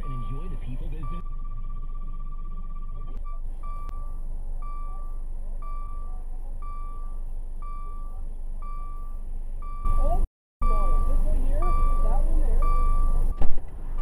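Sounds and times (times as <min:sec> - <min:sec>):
car warning chime ding: 0:02.6 - 0:13.4.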